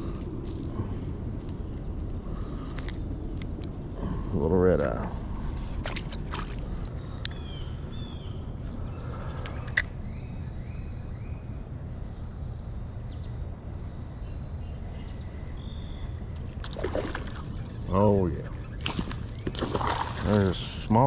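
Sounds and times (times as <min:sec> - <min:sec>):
low river rumble: 0:16.0 - 0:21.0.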